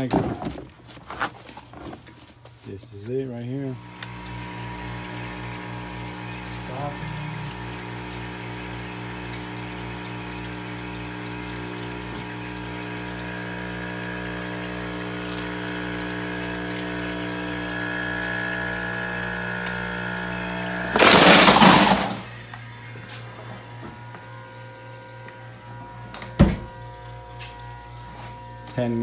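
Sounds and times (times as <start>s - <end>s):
compressor humming: 3.4s - 29.0s
water pump circulating water: 3.6s - 29.0s.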